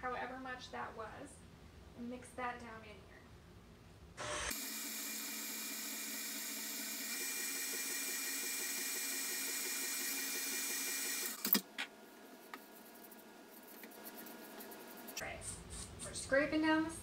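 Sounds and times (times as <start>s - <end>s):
electric stand mixer running: 4.2s - 11.5s.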